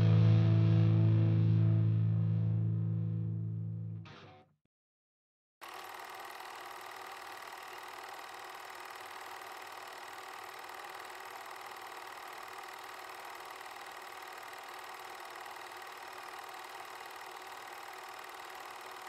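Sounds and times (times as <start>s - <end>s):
film projector whirring: 5.6s - 19.0s.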